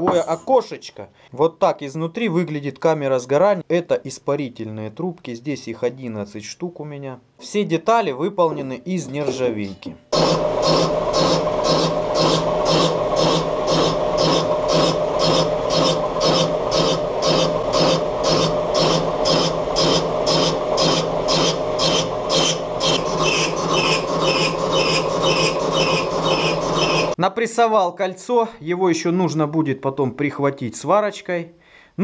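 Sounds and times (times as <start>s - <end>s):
cutting tool rasping on metal: 10.2s - 27.2s
lathe gear hum: 10.2s - 27.2s.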